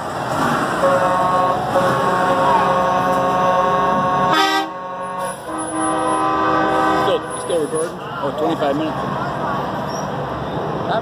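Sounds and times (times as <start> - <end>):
low rumble of passing trucks: 0.0 - 11.0
truck air horn blasts: 0.7 - 7.9.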